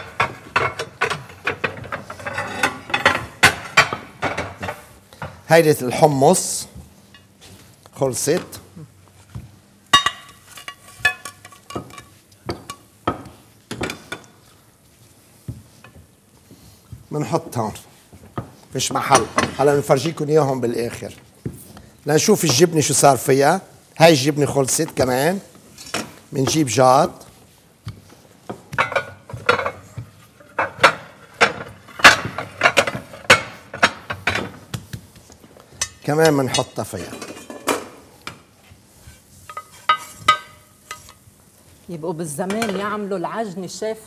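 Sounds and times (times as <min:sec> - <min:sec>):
dishes and utensils clinking: 0:00.0 - 0:05.3, 0:09.9 - 0:14.5, 0:28.4 - 0:34.7, 0:35.7 - 0:38.4, 0:39.4 - 0:41.2, 0:42.5 - 0:43.0
spatula clinking on pans: 0:09.9 - 0:14.3, 0:39.4 - 0:41.2.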